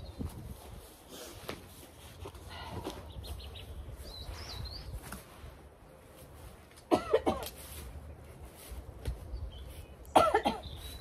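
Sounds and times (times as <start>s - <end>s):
person coughing: 6.9s - 7.5s, 10.1s - 10.7s.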